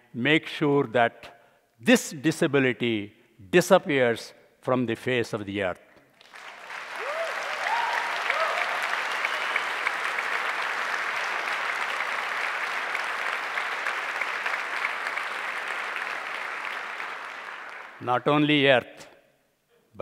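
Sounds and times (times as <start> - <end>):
audience applauding: 6.2 - 18.0.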